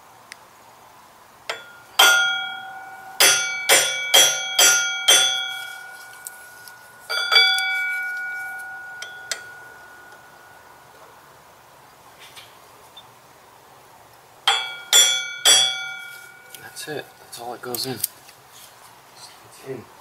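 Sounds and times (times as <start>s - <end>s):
metal tool striking flywheel: 1.5s - 6.3s, 7.1s - 10.4s, 14.5s - 16.7s.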